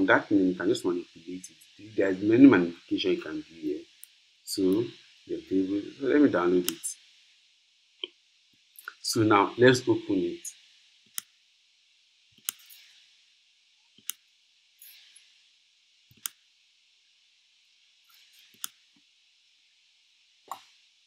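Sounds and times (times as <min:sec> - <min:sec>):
computer mouse clicks: 0:12.4 - 0:12.9, 0:14.0 - 0:14.2, 0:16.1 - 0:16.4, 0:18.1 - 0:18.8.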